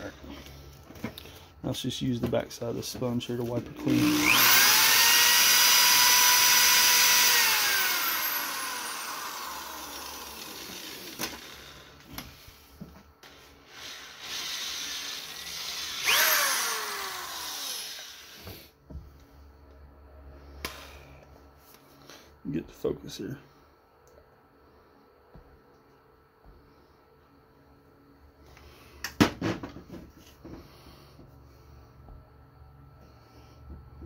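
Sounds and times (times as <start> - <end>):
electric motor whine: 3.8 - 12.3, 13.2 - 18.7.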